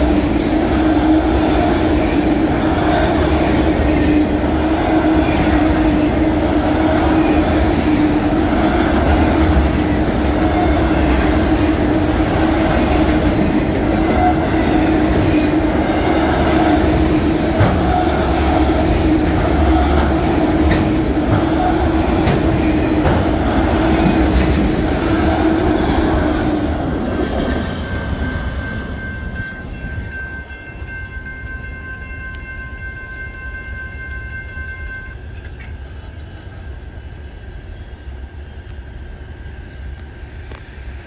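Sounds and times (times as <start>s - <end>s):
freight train wheels rumbling on rails: 0.0s - 41.0s
crossing bell ringing: 13.4s - 23.2s, 27.4s - 36.0s.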